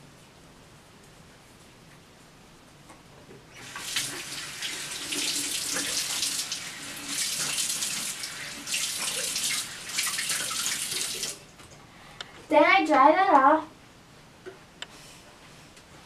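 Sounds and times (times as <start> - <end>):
water running from sink tap: 3.6 - 11.4.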